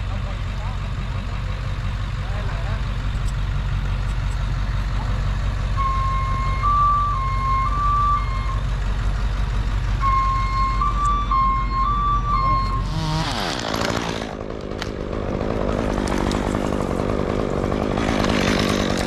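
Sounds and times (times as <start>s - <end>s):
truck engine idling: 0.0s - 19.0s
high two-pitch warning tone: 10.0s - 13.2s.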